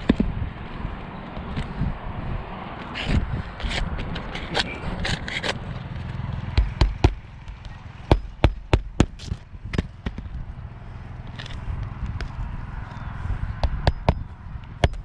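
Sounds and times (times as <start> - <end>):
hammer striking roofing nails: 6.5 - 7.2, 8.1 - 10.3.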